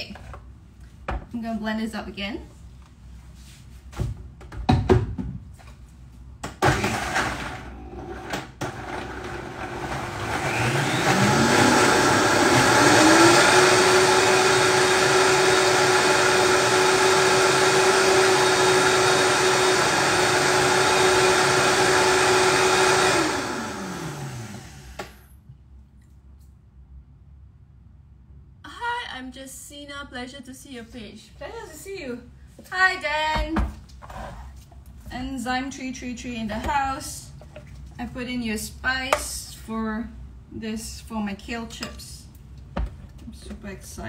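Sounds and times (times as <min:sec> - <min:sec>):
blender motor running: 0:06.6 - 0:25.2.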